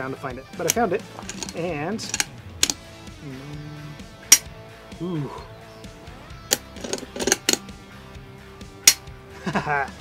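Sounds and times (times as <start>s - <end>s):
faint background music: 0.0s - 10.0s
rifle bolt clicking: 0.6s - 2.8s, 6.5s - 7.6s, 8.9s - 9.1s.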